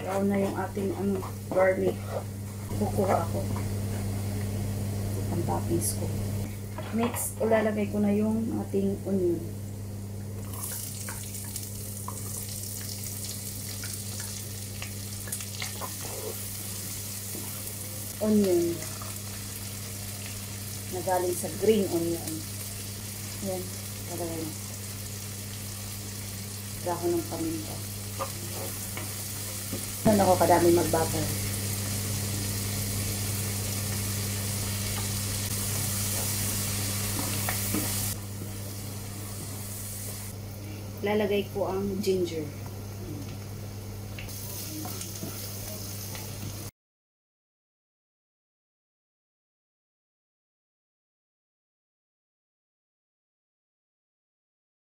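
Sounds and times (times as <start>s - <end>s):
wooden spatula scraping and tapping: 0.0s - 2.3s
low steady hum: 0.0s - 46.5s
onion sizzling in a pan: 10.4s - 46.7s.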